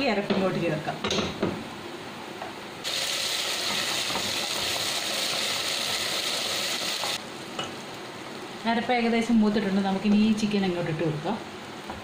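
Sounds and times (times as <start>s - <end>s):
spice paste sizzling in hot oil: 2.8s - 8.8s.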